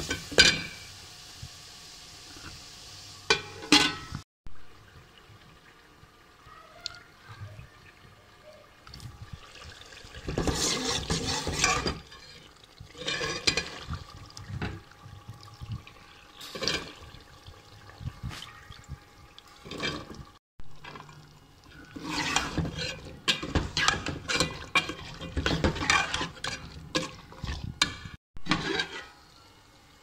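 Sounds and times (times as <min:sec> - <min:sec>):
water sloshing in a steel pot: 0:08.8 - 0:29.2.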